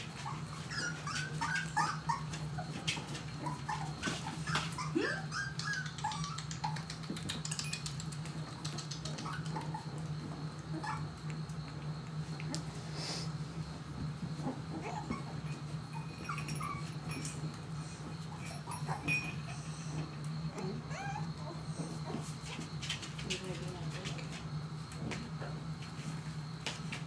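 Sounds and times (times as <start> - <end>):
puppies whining and yipping: 0.1 - 7.6, 8.6 - 11.2, 14.3 - 22.7.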